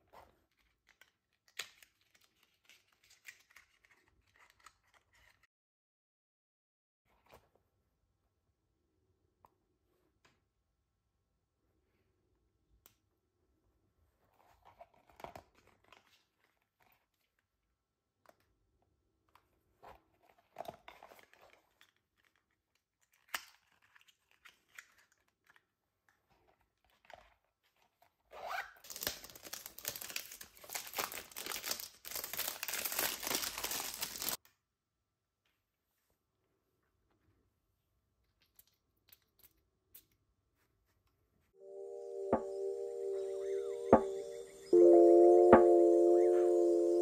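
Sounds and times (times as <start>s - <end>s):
packaging crinkling and tearing: 0.5s - 5.4s, 28.8s - 34.4s.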